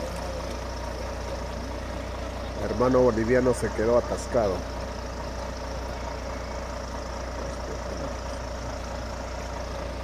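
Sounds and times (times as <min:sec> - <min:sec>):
truck diesel engine idling: 0:00.0 - 0:10.0.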